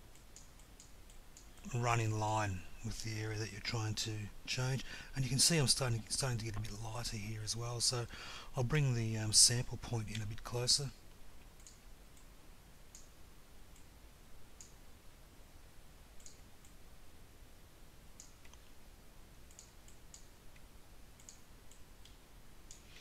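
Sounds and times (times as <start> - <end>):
faint mouse clicks: 0.1 - 1.7, 10.1 - 10.5, 11.1 - 12.3, 12.9 - 13.1, 13.7 - 13.9, 14.6 - 14.8, 16.2 - 16.8, 18.2 - 18.8, 19.5 - 23.0.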